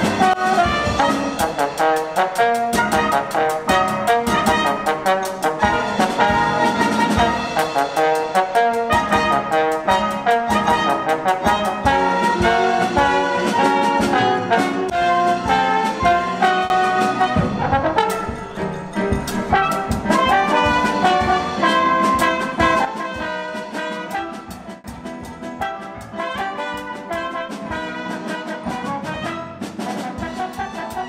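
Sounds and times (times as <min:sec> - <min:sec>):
brass band music: 0:00.0 - 0:31.0
steady drum beat: 0:00.0 - 0:31.0.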